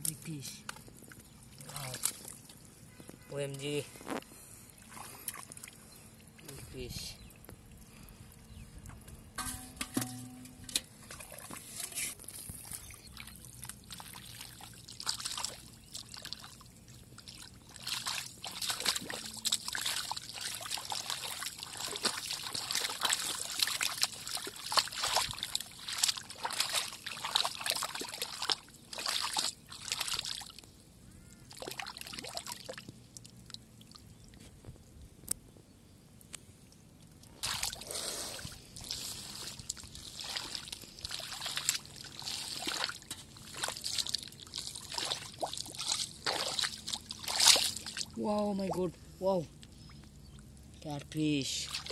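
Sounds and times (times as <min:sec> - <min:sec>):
water dripping: 0:12.4 - 0:30.7, 0:38.8 - 0:48.9
hands splashing in muddy water: 0:12.6 - 0:30.6, 0:31.5 - 0:32.8, 0:37.4 - 0:48.8, 0:51.6 - 0:51.9.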